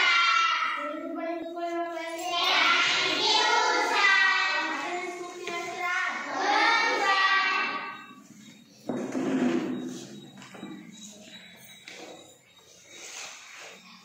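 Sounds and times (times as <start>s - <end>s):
children singing in unison: 0.0s - 1.5s, 2.1s - 8.2s.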